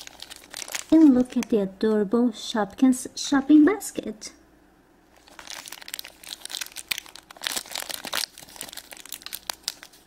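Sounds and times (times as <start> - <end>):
foil bag crinkling: 0.0 - 1.6, 5.1 - 10.0.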